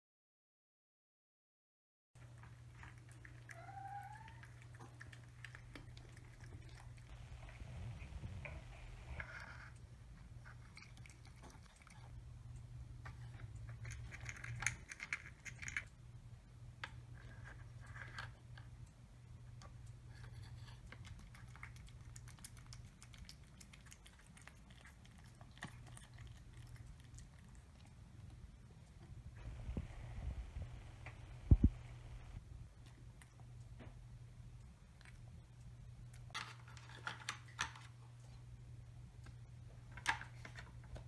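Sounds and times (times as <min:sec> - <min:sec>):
cat chewing dry kibble: 0:02.2 - 0:16.0, 0:16.8 - 0:18.9, 0:19.5 - 0:33.6, 0:34.6 - 0:41.0
steady low hum: 0:04.0 - 0:36.4.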